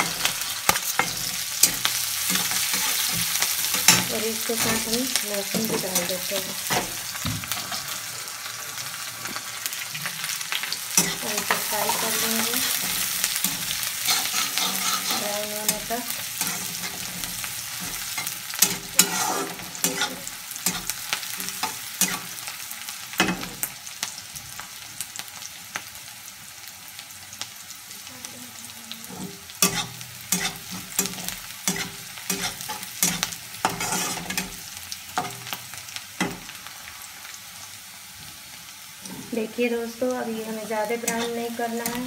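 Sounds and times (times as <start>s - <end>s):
food sizzling in hot oil: 0.0s - 42.0s
spatula scraping and knocking pan: 11.0s - 22.3s, 29.2s - 34.6s.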